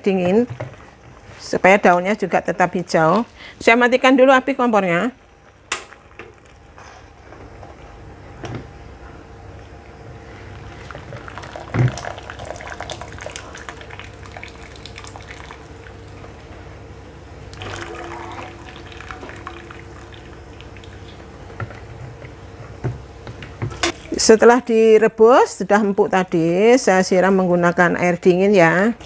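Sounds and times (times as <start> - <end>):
water streaming into a pot: 10.6 - 16.1, 17.6 - 21.7.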